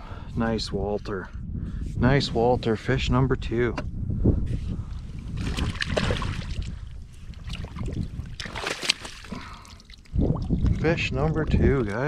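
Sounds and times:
fish splashing in water: 5.4s - 6.7s, 7.4s - 10.2s.

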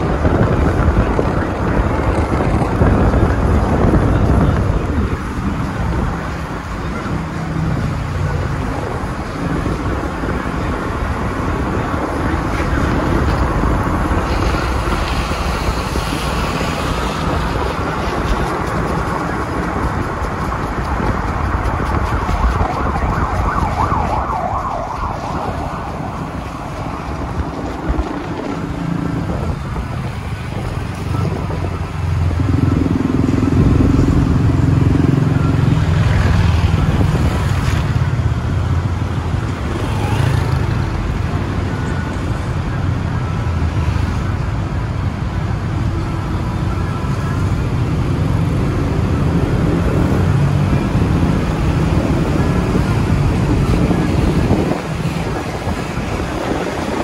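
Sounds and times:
car engine: 0.0s - 42.1s
road noise: 0.0s - 57.0s.

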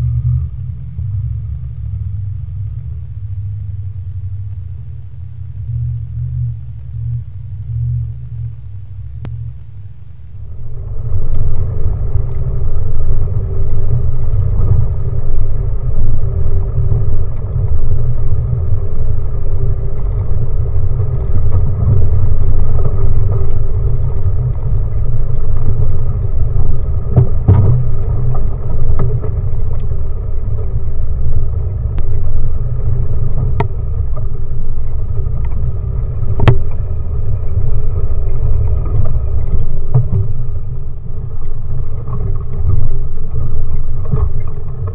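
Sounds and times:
off-road vehicle engine rumble: 0.0s - 44.9s.

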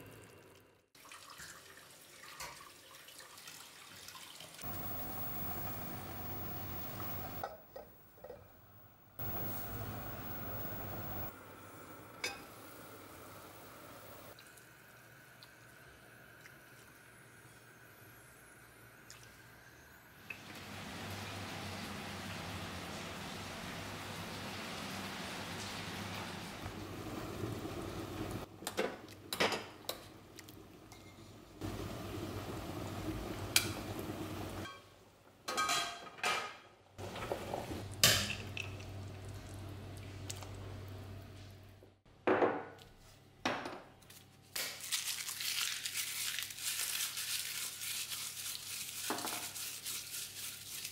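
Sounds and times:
steady low hum: 4.6s - 14.3s.

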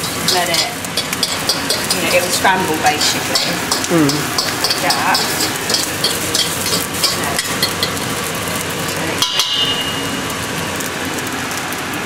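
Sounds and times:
sharp metal clink: 0.0s - 2.2s, 3.0s - 8.0s, 9.2s - 10.1s
utensil ticking against pan: 0.0s - 8.0s
egg sizzling in a wok: 0.0s - 12.0s.

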